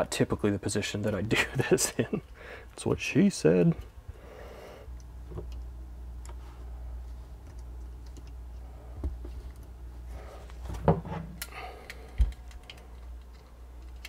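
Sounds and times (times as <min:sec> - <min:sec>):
metal parts clicking and scraping: 0:11.4 - 0:14.0.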